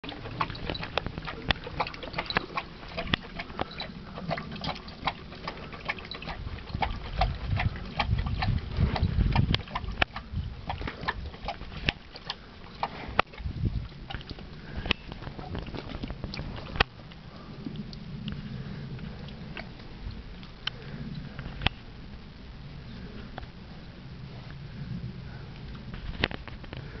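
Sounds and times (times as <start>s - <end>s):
dog lapping water from bowl: 0.0s - 21.4s.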